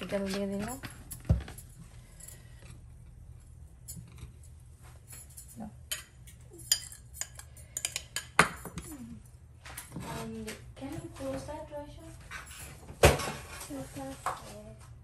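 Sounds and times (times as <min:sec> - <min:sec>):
fork clinking on ceramic bowl: 0:05.2 - 0:08.9.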